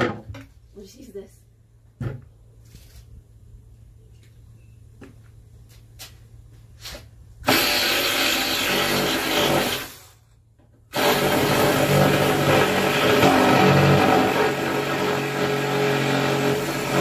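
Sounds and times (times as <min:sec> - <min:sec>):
reciprocating saw cutting wood: 0:07.5 - 0:10.1, 0:10.9 - 0:17.0.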